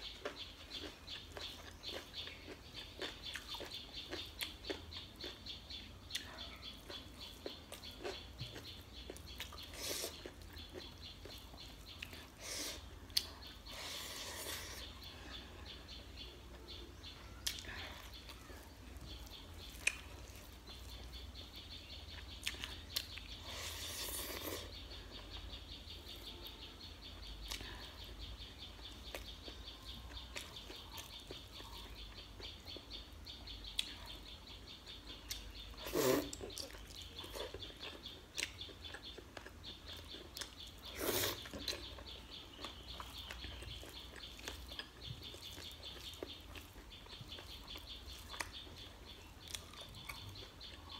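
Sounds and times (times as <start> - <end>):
chewing and lip smacks: 0.0 - 14.2, 17.4 - 23.4, 27.4 - 32.9, 33.7 - 34.2, 35.1 - 50.9.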